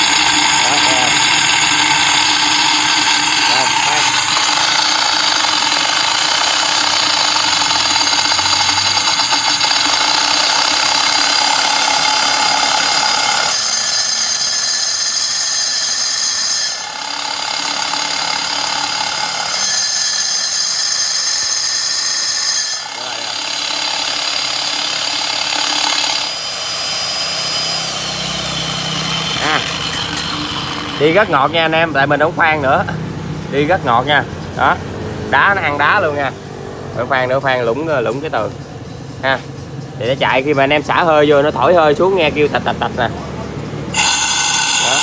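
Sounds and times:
core drill motor whining and grinding: 0.0s - 32.3s, 43.9s - 45.0s.

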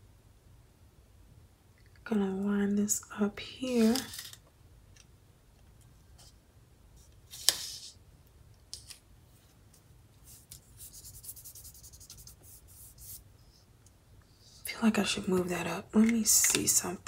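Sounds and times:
pen scratching on paper: 10.3s - 13.2s.

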